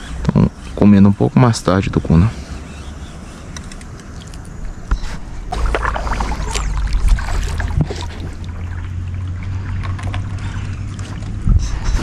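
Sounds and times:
steady low rumble: 0:04.6 - 0:12.0
water swishing: 0:05.2 - 0:12.0.

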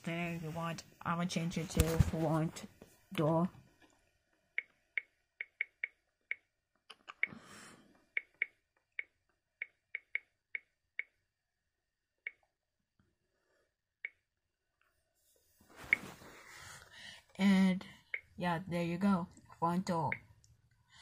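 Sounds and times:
soft rustle: 0:15.2 - 0:16.8.

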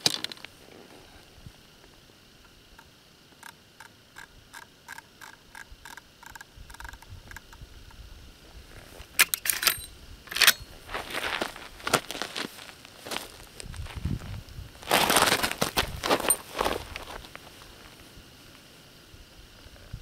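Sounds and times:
rifle lever clicks: 0:09.2 - 0:10.6
rifle lever rattling clatter: 0:09.2 - 0:10.6.

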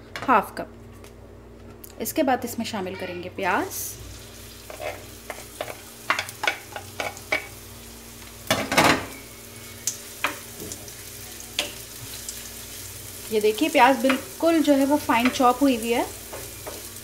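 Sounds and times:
onion sizzling: 0:02.9 - 0:17.0
spoon scraping onion in pan: 0:04.6 - 0:07.5.

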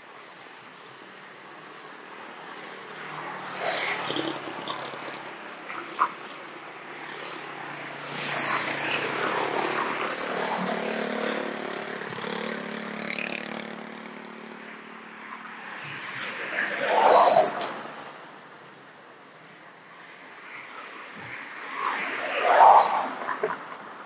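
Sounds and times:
vehicle engine passing by: 0:07.8 - 0:18.3.

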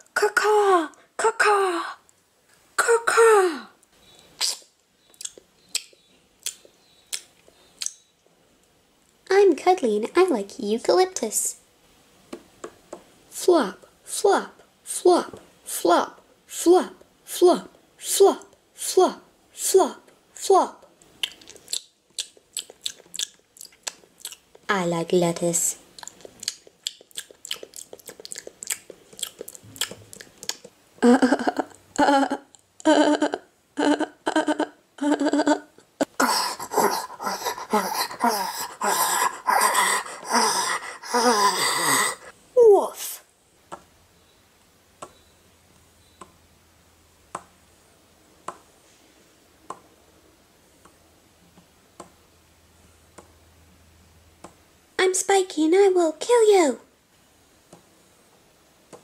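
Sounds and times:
faint low hum: 0:00.0 - 0:59.0
mouth chewing and crunching: 0:04.4 - 0:08.1, 0:21.2 - 0:24.7, 0:25.9 - 0:30.8.

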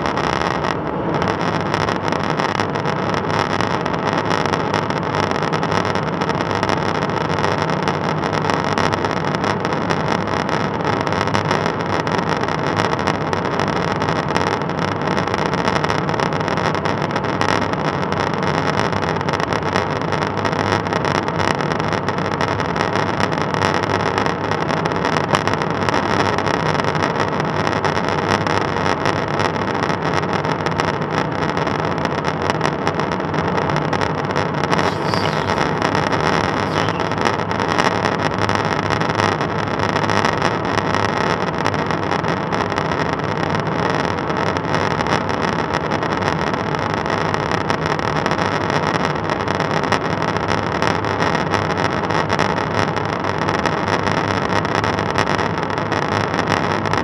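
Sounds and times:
faint steady hum: 0:34.8 - 0:38.0.

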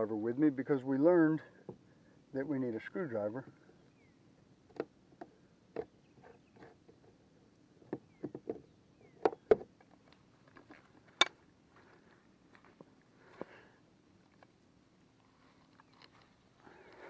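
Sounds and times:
clicks and knocks of kayak fittings: 0:04.7 - 0:07.2, 0:07.8 - 0:11.4.

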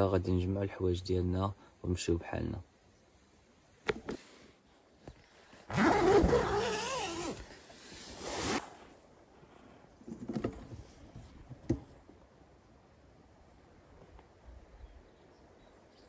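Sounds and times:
tent zipper unzipping: 0:05.4 - 0:08.8.

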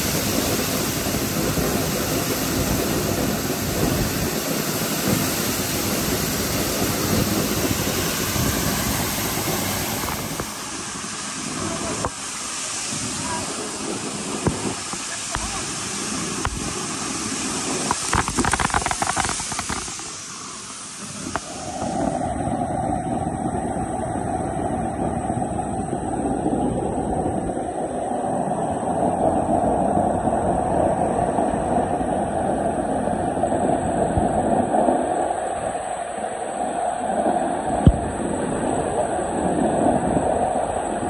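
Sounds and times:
spray splattering down: 0:00.0 - 0:20.4
water rushing from hydrant: 0:00.0 - 0:41.0.

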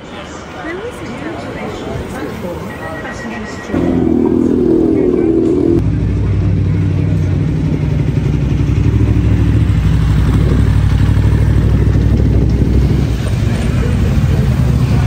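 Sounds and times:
motorcycle engines on cobbles: 0:06.9 - 0:15.0.

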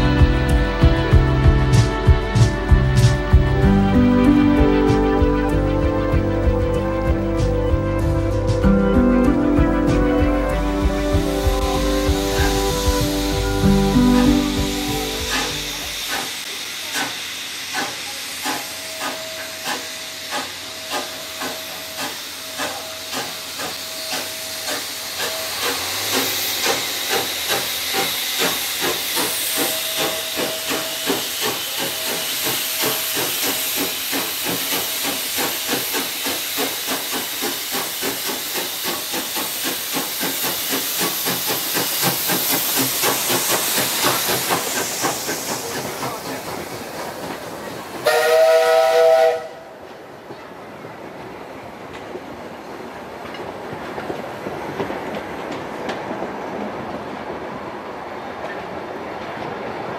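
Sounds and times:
steam locomotive exhaust chuffs: 0:00.0 - 0:49.7
steam hissing: 0:10.4 - 0:49.7.

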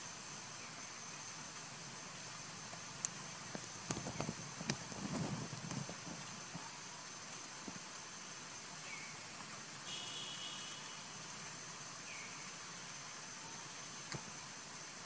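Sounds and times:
background hiss: 0:00.0 - 0:15.0
faint chirps: 0:06.5 - 0:15.0
short buzz: 0:09.9 - 0:11.1
high-pitched insect-like tone: 0:09.9 - 0:11.3.

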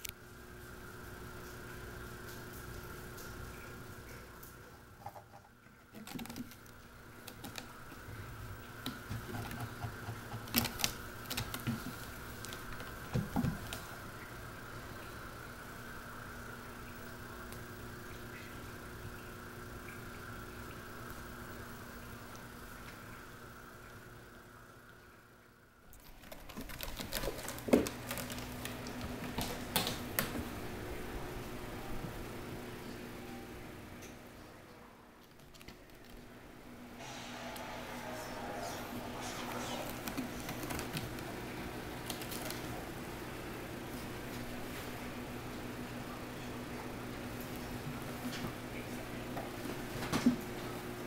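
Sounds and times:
cat claws scratching rope: 0:26.0 - 0:29.9.

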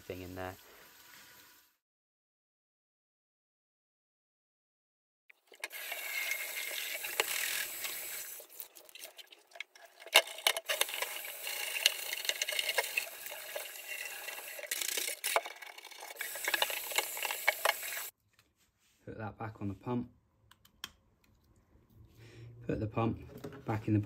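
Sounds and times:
tap water running into sink: 0:05.5 - 0:18.1.

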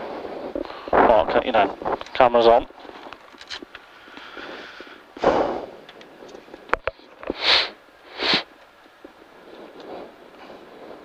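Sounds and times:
breaths into microphone: 0:03.9 - 0:08.5
hissy sniffs: 0:04.2 - 0:05.8, 0:07.3 - 0:08.5.

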